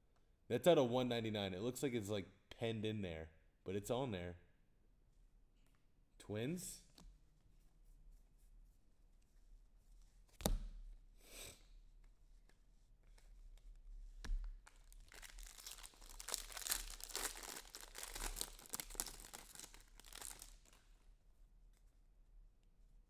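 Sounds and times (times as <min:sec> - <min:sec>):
foil wrapper tearing and crinkling: 0:14.7 - 0:20.8.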